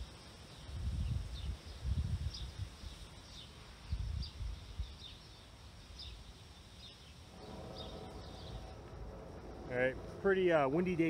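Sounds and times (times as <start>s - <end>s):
small bird chirping: 0.0s - 9.7s
faint steady hum: 0.0s - 11.0s
low rumbles: 7.3s - 11.0s.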